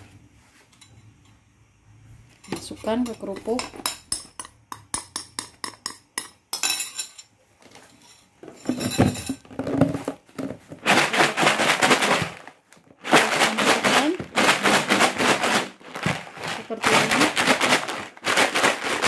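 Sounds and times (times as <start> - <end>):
spoon clinking against dish: 2.5 - 7.3
crackers rattling in plastic container: 9.4 - 19.0.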